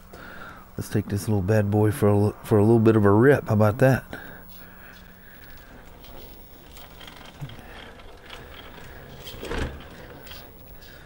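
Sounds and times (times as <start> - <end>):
tires clicking on wire mesh: 5.2 - 11.0
rc truck motor and gears: 5.4 - 11.0.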